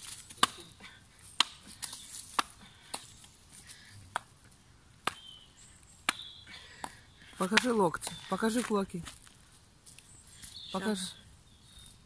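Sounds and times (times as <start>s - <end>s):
hand striking bark cracking: 0.0s - 0.7s, 1.3s - 3.3s, 5.0s - 5.4s, 6.0s - 9.2s.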